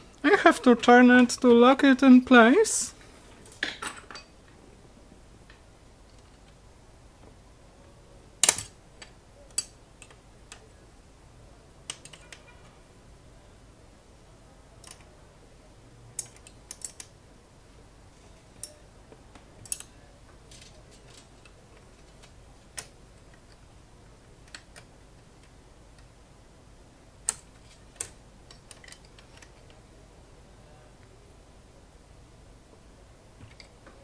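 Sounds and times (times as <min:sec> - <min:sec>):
typewriter parts clicking: 0:11.9 - 0:12.5.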